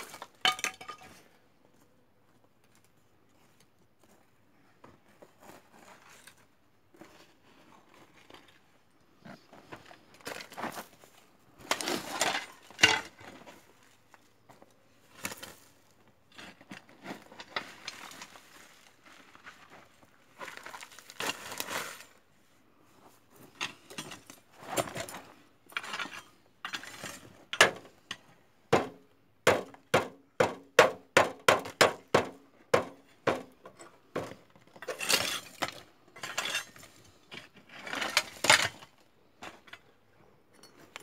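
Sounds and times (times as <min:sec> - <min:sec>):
sharp knocks on metal: 0:28.7 - 0:33.6.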